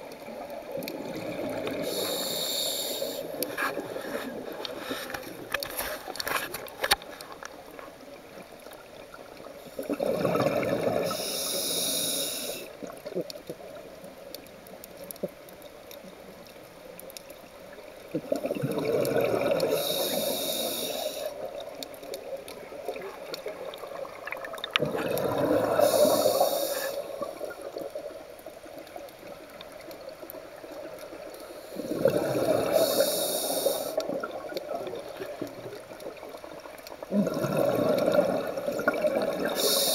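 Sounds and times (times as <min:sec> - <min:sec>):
underwater water noise: 0:00.0 - 0:39.9
regulator breathing bubbles: 0:37.1 - 0:39.9.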